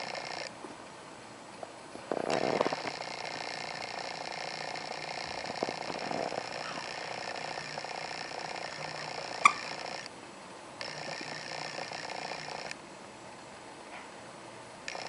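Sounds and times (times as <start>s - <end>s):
steady background hum: 0.0s - 15.0s
toy squeak: 9.1s - 9.8s.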